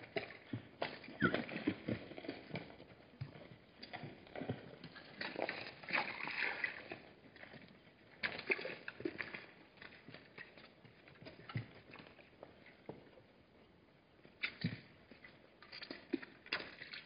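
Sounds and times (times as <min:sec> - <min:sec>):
hooves on stony ground: 0:00.0 - 0:05.8.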